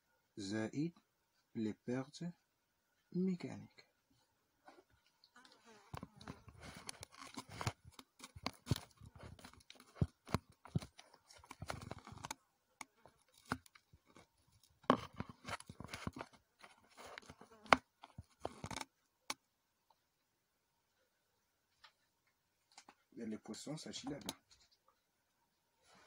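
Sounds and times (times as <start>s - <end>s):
scratching and rustling: 4.6s - 18.9s.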